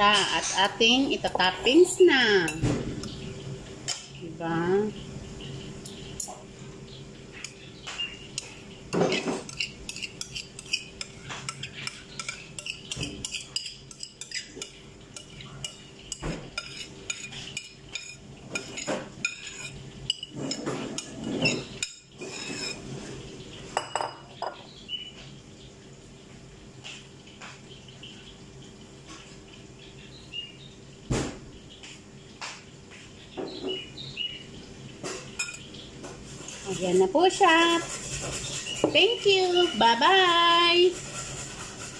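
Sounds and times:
metal spoon scraping bowls: 0:08.4 - 0:15.8, 0:16.6 - 0:22.9, 0:36.3 - 0:41.9.

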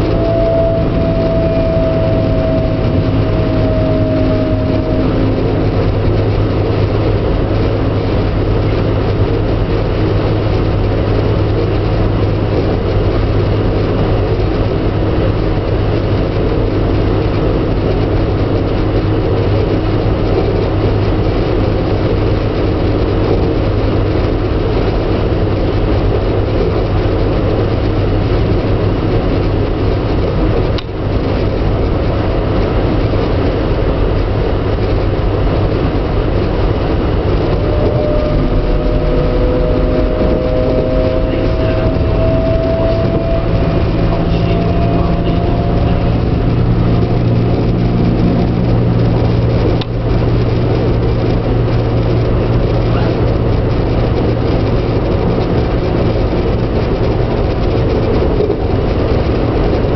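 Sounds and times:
train wheels rumbling on rails: 0:00.0 - 0:59.9
train whine: 0:00.0 - 0:59.9.

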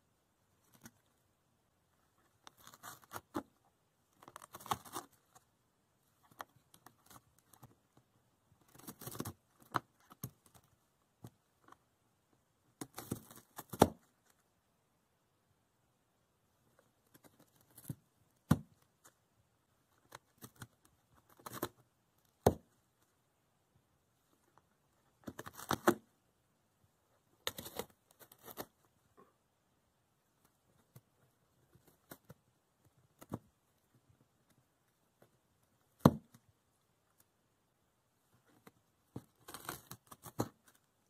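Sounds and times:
cat tearing cardboard: 0:02.4 - 0:03.6, 0:04.2 - 0:05.4, 0:08.6 - 0:10.6, 0:12.8 - 0:14.2, 0:20.0 - 0:22.7, 0:25.2 - 0:26.1, 0:27.4 - 0:28.8, 0:39.2 - 0:40.8.

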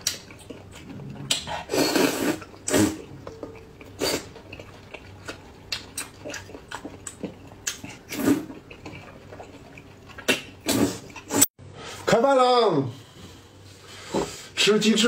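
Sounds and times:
person slurping noodles: 0:00.8 - 0:03.2, 0:03.8 - 0:04.8, 0:07.8 - 0:09.1
chewing mouth clicks: 0:03.2 - 0:11.3.

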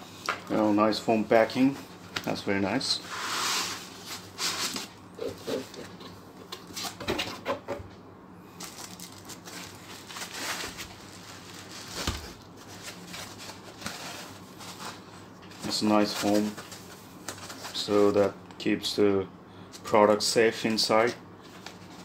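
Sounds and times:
plastic wrap crinkling: 0:08.6 - 0:15.0
foam insert rustling: 0:08.6 - 0:18.2.

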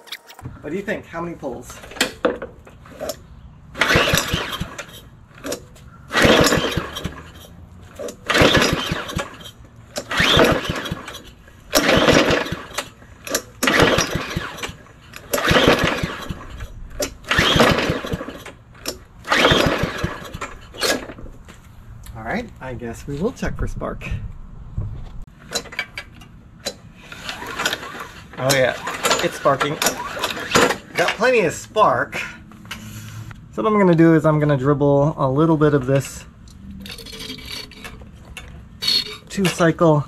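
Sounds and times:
lawn mower recoil rope pulls: 0:01.6 - 0:21.4, 0:25.4 - 0:31.6, 0:32.6 - 0:33.4, 0:35.9 - 0:40.0.

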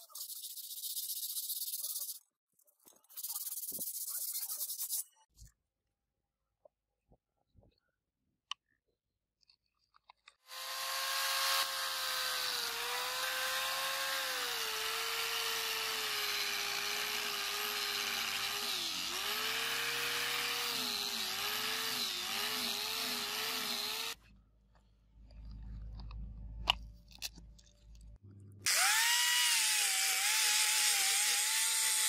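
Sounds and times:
angle grinder sanding metal: 0:10.6 - 0:24.2, 0:28.7 - 0:32.0.

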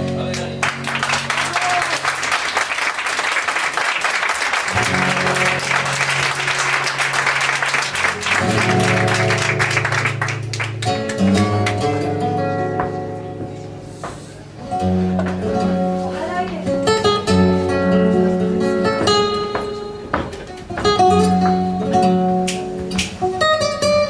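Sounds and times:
flamenco acoustic guitar: 0:00.0 - 0:02.0, 0:04.6 - 0:24.0
audience applauding: 0:00.0 - 0:12.1.

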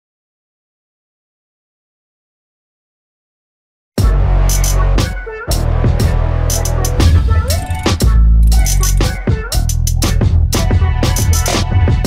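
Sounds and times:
electronic music with heavy bass: 0:04.0 - 0:12.0
rising synth glide: 0:06.6 - 0:09.0.

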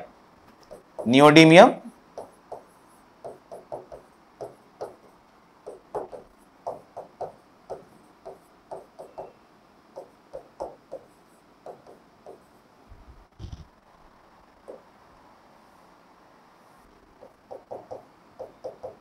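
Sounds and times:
marker pen writing on whiteboard: 0:00.6 - 0:01.3, 0:02.1 - 0:09.4, 0:10.0 - 0:12.6, 0:17.2 - 0:19.0.

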